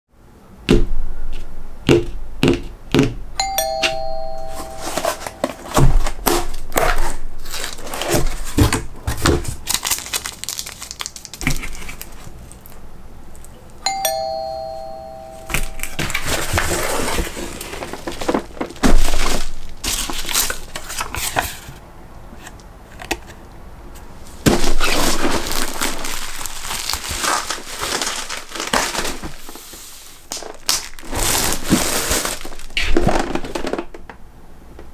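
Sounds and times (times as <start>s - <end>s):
two-note doorbell chime: 3.4s - 5.7s, 13.8s - 16.2s
bubble wrap crinkling: 4.5s - 13.6s, 15.5s - 21.7s, 24.4s - 34.0s.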